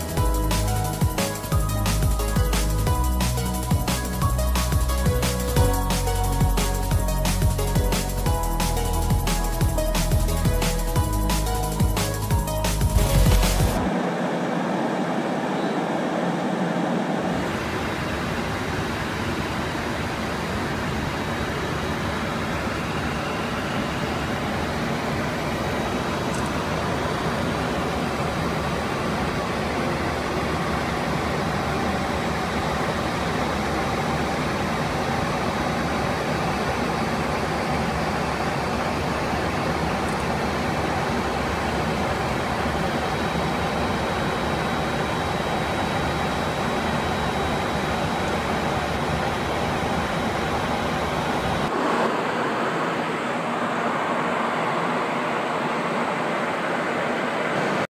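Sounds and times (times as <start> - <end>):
airliner cabin engine noise: 0.0 - 57.9.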